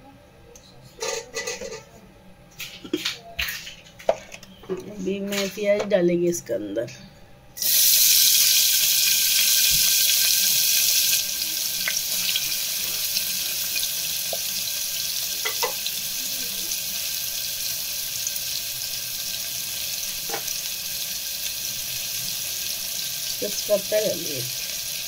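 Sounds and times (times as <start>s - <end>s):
onions sizzling in hot oil: 7.6s - 25.0s.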